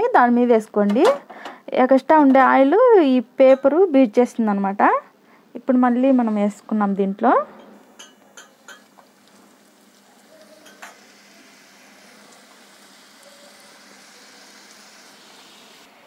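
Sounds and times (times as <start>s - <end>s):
pastries sizzling in hot oil: 7.8s - 16.0s.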